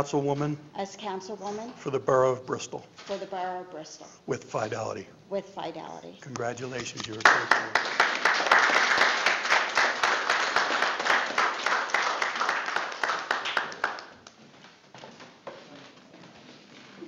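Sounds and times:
audience applauding: 0:07.2 - 0:14.3.

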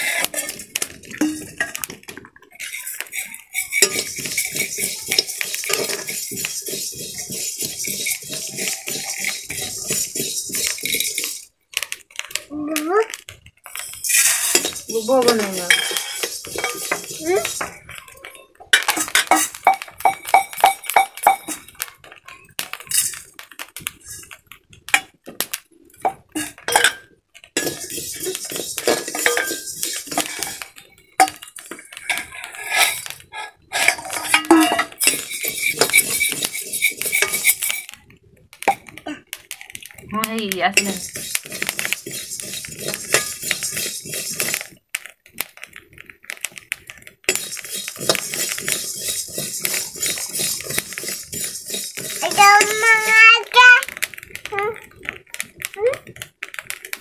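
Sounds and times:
rice grains rattling and hissing: 0:00.0 - 0:01.7, 0:02.6 - 0:11.6, 0:13.7 - 0:18.0, 0:27.6 - 0:30.8, 0:31.6 - 0:38.0, 0:40.7 - 0:44.9, 0:47.2 - 0:53.2
metal spoon scraping a wok: 0:00.0 - 0:01.9, 0:02.5 - 0:11.5, 0:13.8 - 0:21.7, 0:27.6 - 0:38.0, 0:40.7 - 0:44.7, 0:47.3 - 0:53.2.

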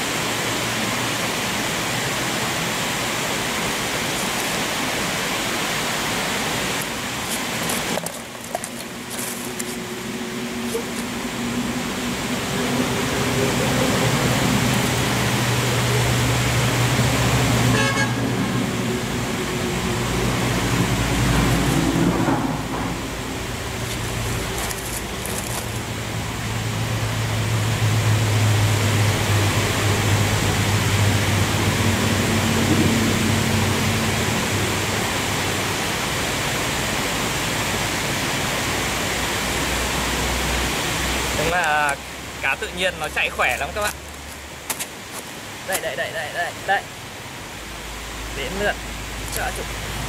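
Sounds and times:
rushing noise: 0:18.4 - 0:35.6.

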